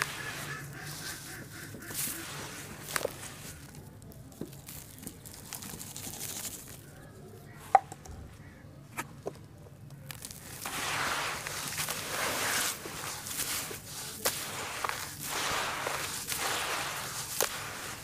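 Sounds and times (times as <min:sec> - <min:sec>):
hands crumbling damp ash and sand: 0:00.0 - 0:18.0
grains pattering down: 0:09.9 - 0:18.0.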